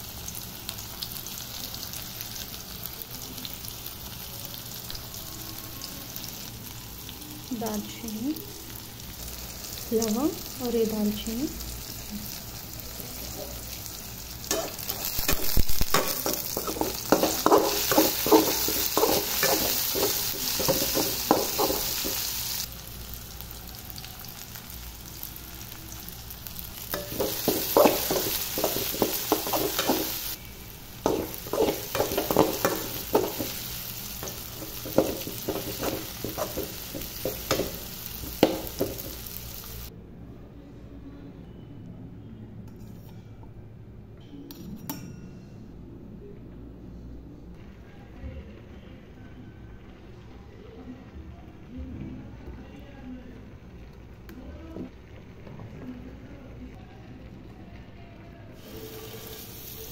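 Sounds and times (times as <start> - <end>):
vegetables sizzling in oil: 0.0 - 39.9, 58.6 - 59.9
metal spatula scraping pan: 14.5 - 22.4, 31.0 - 37.8.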